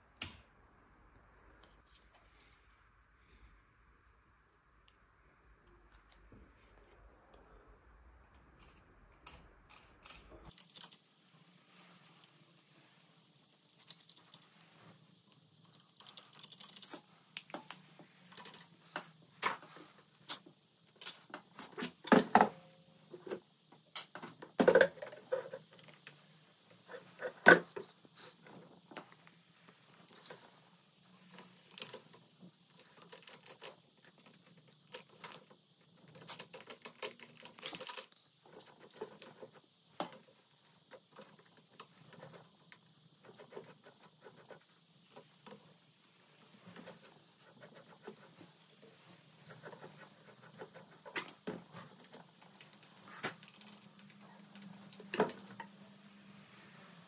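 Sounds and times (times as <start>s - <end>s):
sewing machine parts clicking and rattling: 9.7s - 14.6s, 15.3s - 18.8s, 31.2s - 45.4s.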